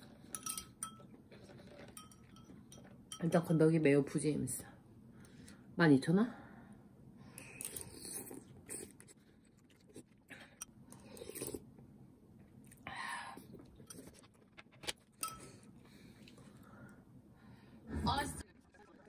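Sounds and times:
faint chewing: 0:00.0 - 0:03.2, 0:07.4 - 0:16.7.

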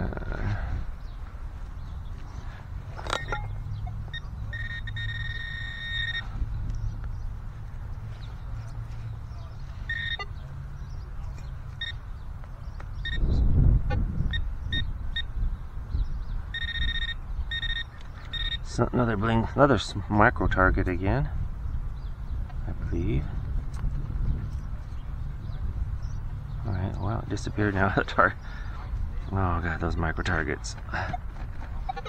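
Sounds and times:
metal detector tone: 0:03.0 - 0:06.3, 0:09.8 - 0:10.3, 0:13.0 - 0:13.3, 0:14.3 - 0:15.3, 0:16.5 - 0:18.7
metal detector short beeps: 0:03.1 - 0:06.3, 0:09.9 - 0:10.3, 0:13.0 - 0:13.3, 0:14.3 - 0:15.3, 0:16.6 - 0:18.7.

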